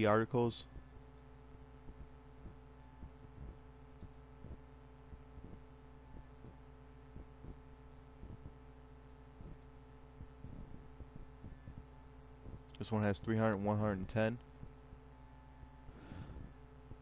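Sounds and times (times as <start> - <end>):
faint electrical hum: 0.0 - 17.0
computer mouse clicks: 4.0 - 4.3, 7.8 - 8.4, 9.4 - 10.2, 14.5 - 14.8.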